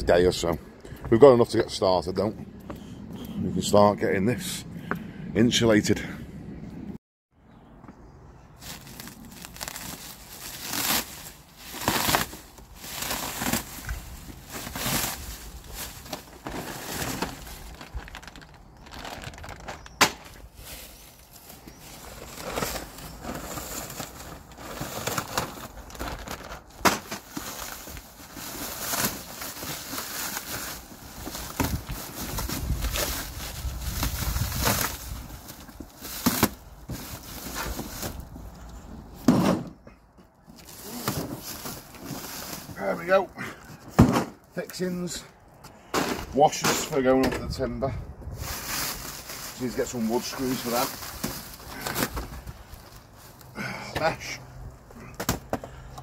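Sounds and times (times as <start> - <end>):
plastic wrap tearing and crinkling: 8.6 - 38.2, 48.4 - 53.5.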